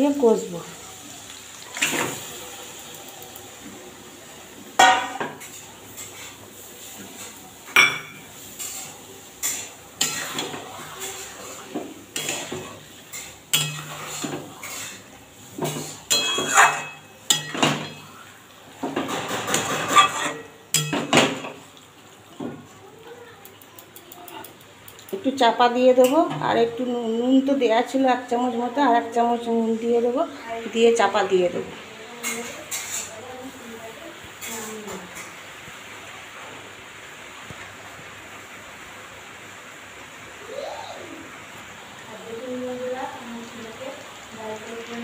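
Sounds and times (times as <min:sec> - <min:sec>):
metal spatula scraping a pan: 0:08.3 - 0:18.2, 0:18.9 - 0:21.1, 0:32.2 - 0:33.2.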